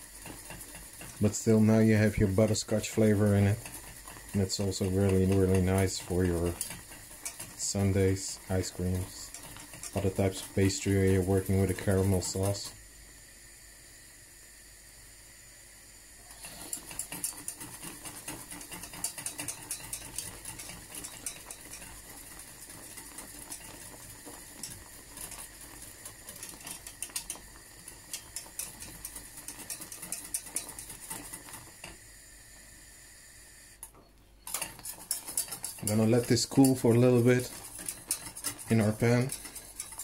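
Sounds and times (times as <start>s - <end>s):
whisk clicking against saucepan: 0.0s - 12.7s, 16.4s - 32.0s, 33.8s - 40.0s
faint hiss: 0.0s - 17.2s, 30.2s - 34.4s.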